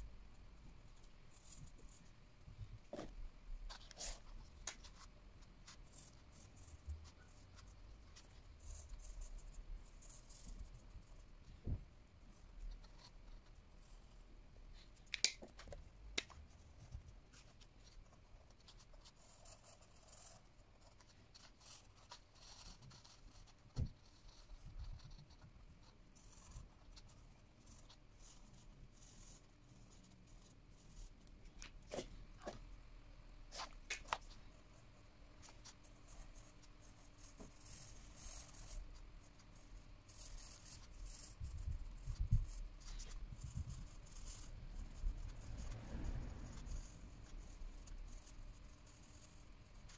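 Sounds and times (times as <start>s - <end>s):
markers scratching on paper: 2.9s - 11.8s, 14.8s - 32.6s, 33.5s - 34.5s, 35.4s - 49.9s
markers clicking: 15.1s - 16.4s.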